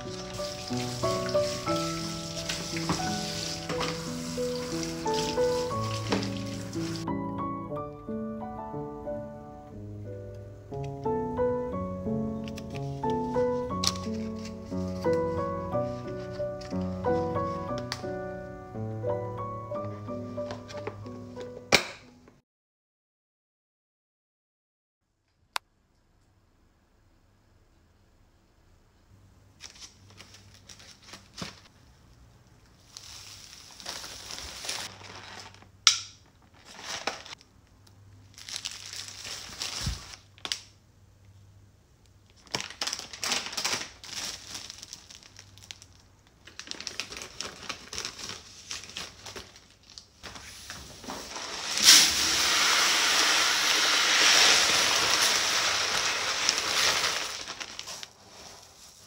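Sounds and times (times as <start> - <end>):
plastic packaging crinkling: 0.0 - 7.1, 12.5 - 18.2, 29.6 - 31.7, 32.8 - 37.5, 38.2 - 40.7, 42.2 - 59.0
shopping bag rustling: 0.0 - 7.1, 12.8 - 18.2, 29.6 - 31.7, 32.8 - 37.4, 38.3 - 40.5, 42.4 - 59.0.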